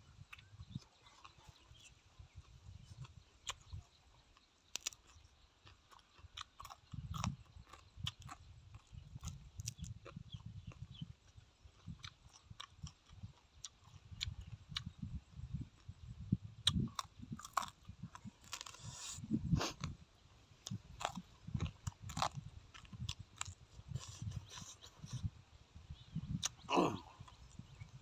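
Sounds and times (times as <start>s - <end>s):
man chewing food: 0.1s - 16.0s, 16.6s - 25.4s, 26.2s - 28.0s.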